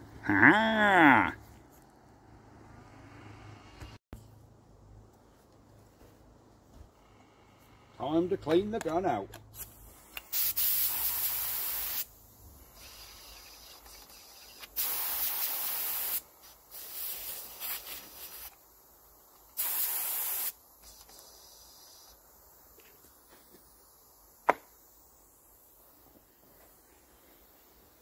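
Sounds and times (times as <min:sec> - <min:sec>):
paint spray gun hissing: 0:09.5 - 0:28.0.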